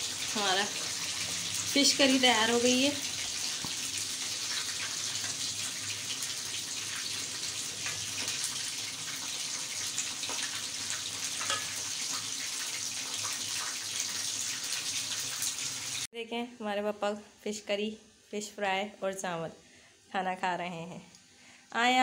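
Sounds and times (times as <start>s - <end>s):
ladle clinking against pot: 11.4s - 11.7s.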